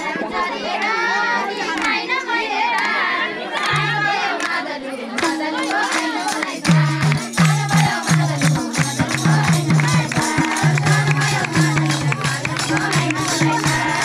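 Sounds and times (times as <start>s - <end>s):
voices singing: 0.0s - 14.0s
hand clapping: 1.7s - 2.1s, 3.6s - 14.0s
hand drums beating: 3.7s - 14.0s.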